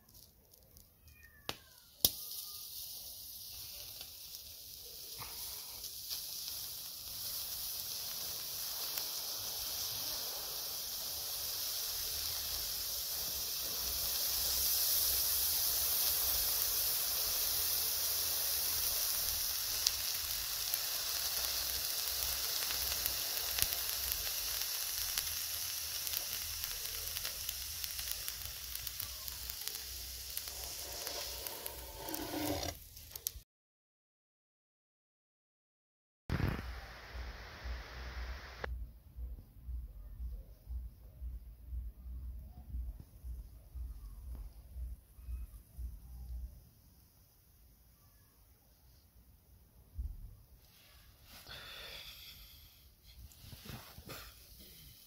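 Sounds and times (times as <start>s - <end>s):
hot blade sizzling through tomato: 1.5s - 33.4s, 51.4s - 55.0s.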